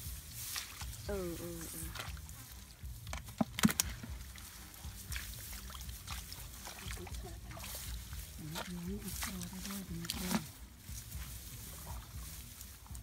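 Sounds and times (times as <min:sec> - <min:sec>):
water pouring from bucket: 0:00.0 - 0:10.6
steady low rumble: 0:00.0 - 0:13.0
sharp splashes or knocks: 0:03.0 - 0:10.6.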